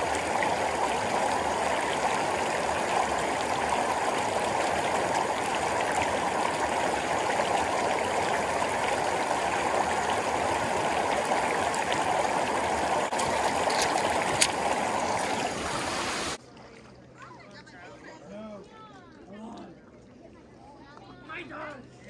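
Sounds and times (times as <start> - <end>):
stream rushing over rocks: 0.0 - 16.4.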